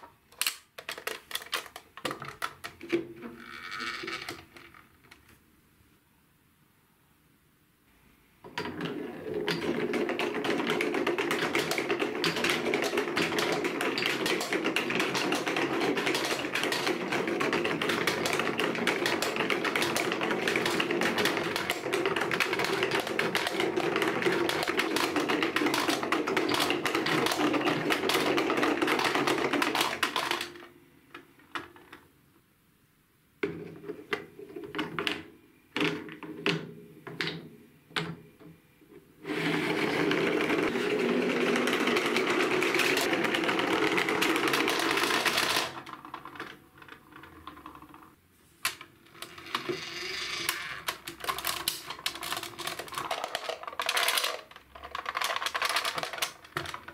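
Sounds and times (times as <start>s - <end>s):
balls clicking and tapping: 0.0s - 5.4s, 8.4s - 32.2s, 33.4s - 39.1s, 40.0s - 56.9s
balls rattling down marble run: 0.8s - 4.8s, 8.6s - 30.8s, 39.3s - 56.9s.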